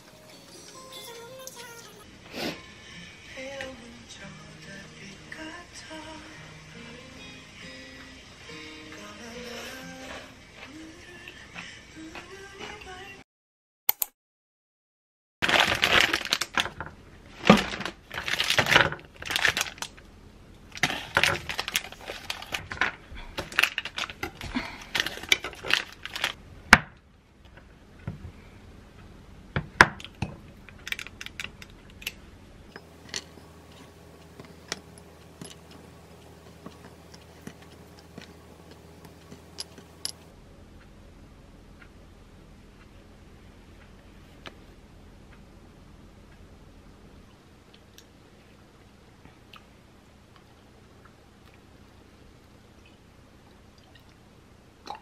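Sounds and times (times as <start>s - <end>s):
wrapper rustling and crackling: 15.4s - 20.0s, 20.8s - 22.8s, 23.4s - 26.4s
faint low hum: 30.3s - 54.8s.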